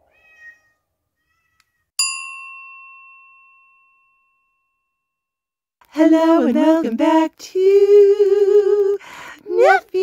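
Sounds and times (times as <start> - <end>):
bell-like chime ringing: 2.0 - 5.3.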